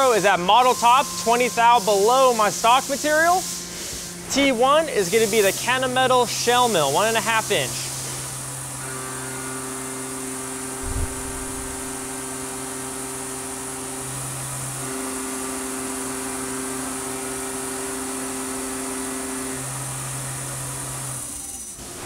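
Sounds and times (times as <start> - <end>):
hiss of metal cutting: 0.0 - 14.8
mill spindle hum and whine: 0.0 - 22.0
thump: 10.8 - 11.7.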